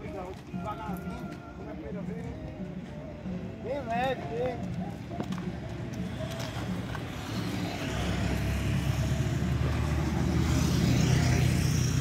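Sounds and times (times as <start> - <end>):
vehicle engine humming: 4.7 - 12.0.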